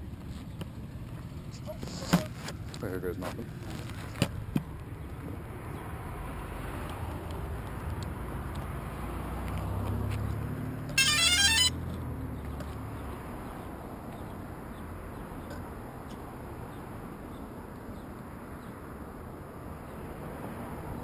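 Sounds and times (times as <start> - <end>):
drone startup beeps rising in pitch: 11.0 - 11.8.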